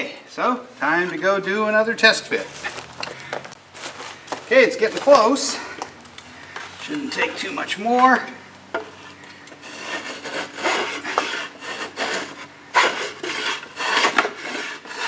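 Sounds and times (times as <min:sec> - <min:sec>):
hand plane shaving wood: 0:08.8 - 0:15.0.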